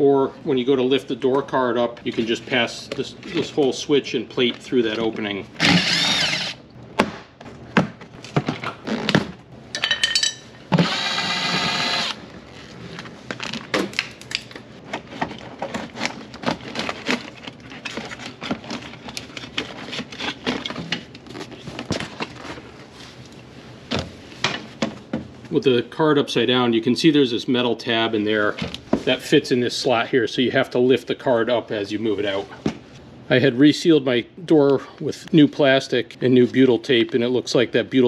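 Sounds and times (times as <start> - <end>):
cordless drill whining: 5.6 - 6.6, 10.7 - 12.2.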